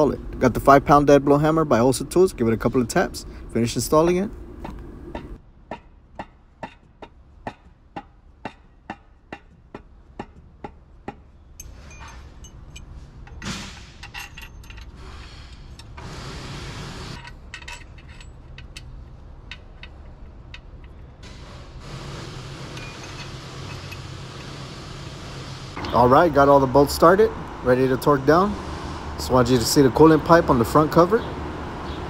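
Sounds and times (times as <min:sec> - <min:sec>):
metal clinks and scraping: 0:11.6 - 0:16.0, 0:17.1 - 0:21.1, 0:22.7 - 0:24.6.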